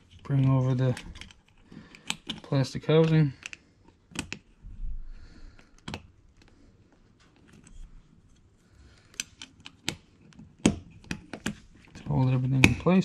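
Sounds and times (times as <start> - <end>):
seat belt buckle parts clicking: 1.0 - 4.5.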